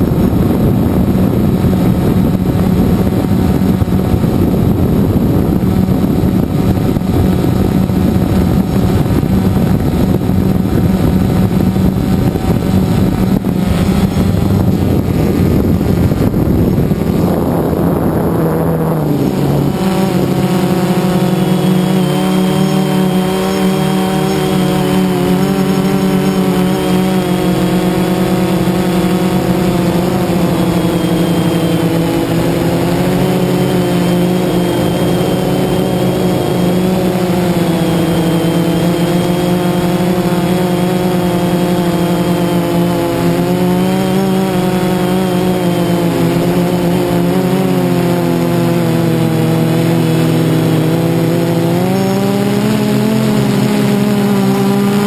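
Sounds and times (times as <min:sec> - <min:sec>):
drone propellers whirring: 0:00.0 - 0:55.0.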